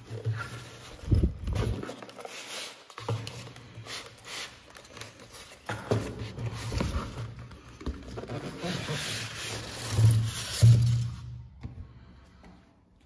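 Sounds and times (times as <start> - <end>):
cardboard rubbing and scraping: 6.2 - 11.0.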